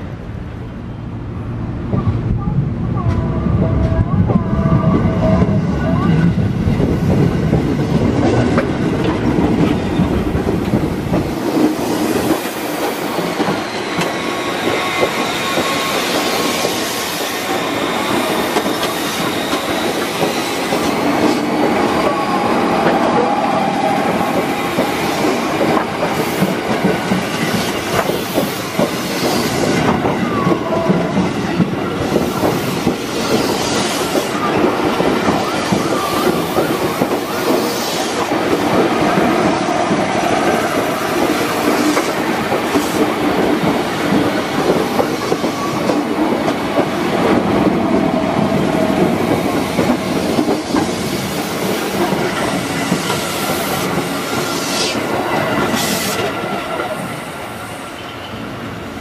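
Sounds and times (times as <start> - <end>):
train wheels rumbling and clacking: 1.7 - 59.0
train wheel squeal: 11.8 - 26.6, 27.3 - 38.3, 44.6 - 46.2, 48.8 - 58.7.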